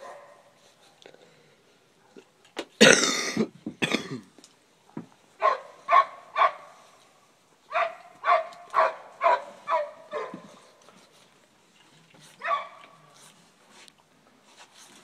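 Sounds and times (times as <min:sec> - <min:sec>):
dog barking: 0:00.0 - 0:00.5, 0:05.4 - 0:06.8, 0:07.7 - 0:10.5, 0:12.4 - 0:13.0.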